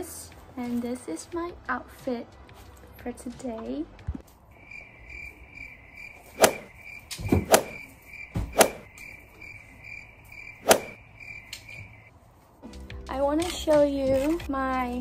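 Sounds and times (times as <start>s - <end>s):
crickets chirping: 4.4s - 12.1s
sharp knocks: 6.4s - 7.8s, 8.4s - 8.9s.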